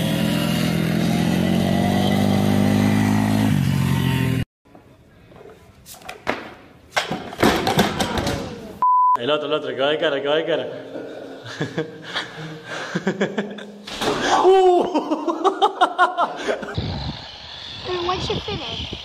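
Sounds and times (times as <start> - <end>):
dirt-bike engines whining: 0.0 - 4.4, 16.4 - 19.0.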